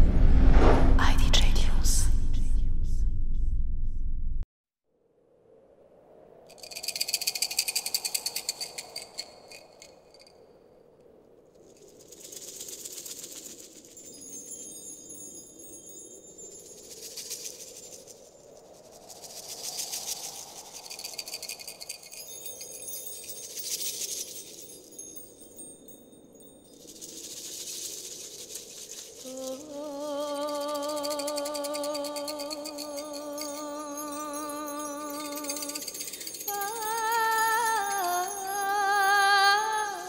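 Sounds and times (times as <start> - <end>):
faint low drone: 0.0 - 4.4
shimmering rattles and chimes: 6.5 - 10.7, 11.6 - 40.0.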